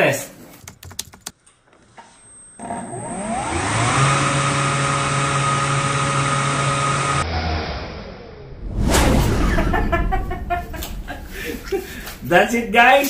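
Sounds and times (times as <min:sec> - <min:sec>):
leaf blower whining: 0:02.6 - 0:07.2
rush of air: 0:08.5 - 0:12.3.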